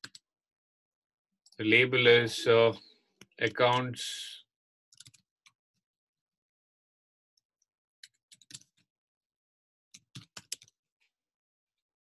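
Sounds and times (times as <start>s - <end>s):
faint keyboard typing: 0.0s - 0.2s, 3.2s - 4.0s, 4.9s - 5.6s, 8.0s - 8.9s, 9.9s - 10.8s.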